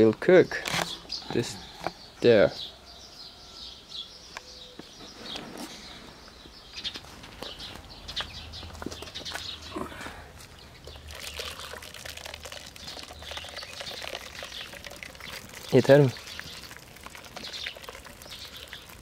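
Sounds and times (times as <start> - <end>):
water pouring into pot: 11.1 - 19.0.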